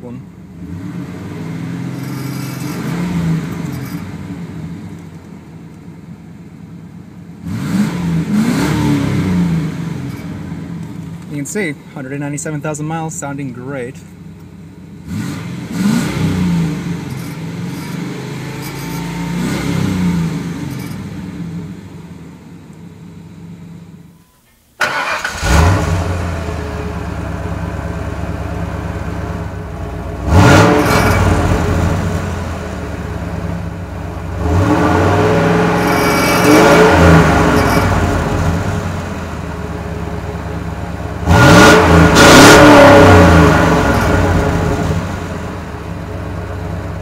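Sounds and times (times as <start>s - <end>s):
car engine revving: 0.5s - 5.5s, 7.3s - 11.3s, 15.0s - 22.1s, 24.8s - 28.7s, 29.5s - 46.4s.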